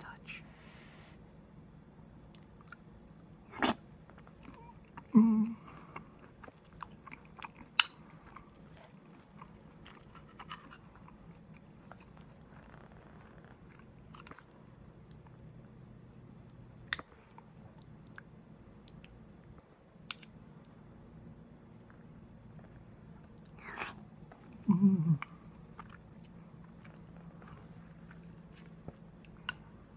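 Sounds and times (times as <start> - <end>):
person chewing food: 3.6 - 15.8, 21.7 - 29.9.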